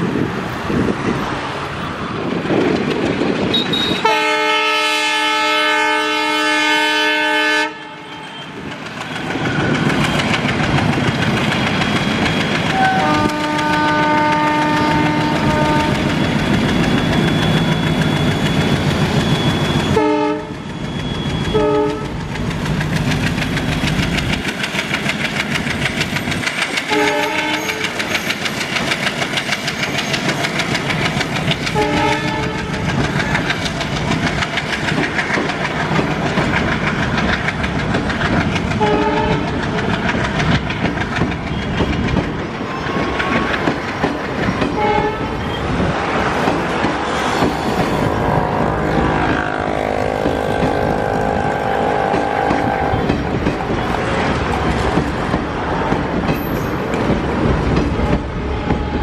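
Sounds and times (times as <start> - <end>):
train wheels clattering: 2.1 - 4.7, 8.2 - 59.0
locomotive horn blasts: 3.5 - 8.6, 12.7 - 16.2, 19.9 - 20.6, 21.5 - 22.1, 26.9 - 28.0, 31.8 - 32.9, 38.8 - 39.4, 44.8 - 45.6, 48.0 - 53.2
locomotive engine running: 8.6 - 59.0.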